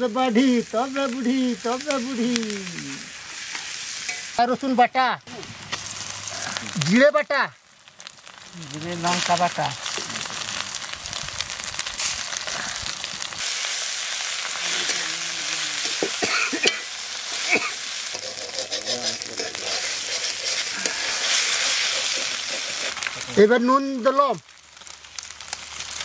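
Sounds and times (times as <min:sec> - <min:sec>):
onions sizzling in hot oil: 0:00.0 - 0:26.0
metal spatula scraping a pan: 0:15.8 - 0:23.1.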